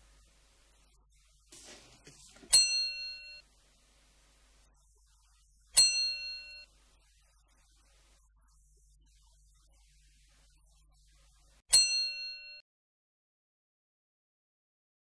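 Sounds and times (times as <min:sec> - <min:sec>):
bell-like chime: 0:02.5 - 0:03.4, 0:05.8 - 0:06.7, 0:11.7 - 0:12.6.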